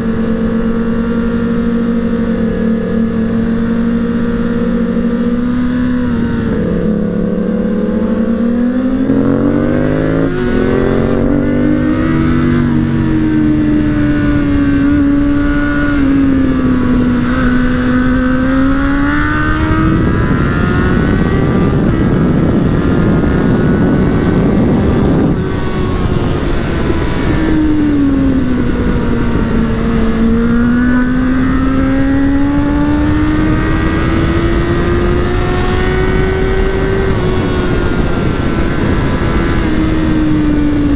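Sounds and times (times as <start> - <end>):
motorcycle engine revving: 0.0 - 40.9
wind noise: 0.0 - 40.9.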